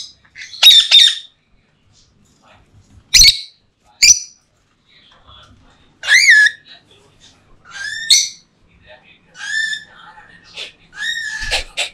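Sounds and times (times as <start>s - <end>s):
parrots squawking: 0.0s - 1.3s, 3.1s - 4.4s, 6.0s - 6.6s, 7.6s - 8.5s, 9.4s - 11.9s.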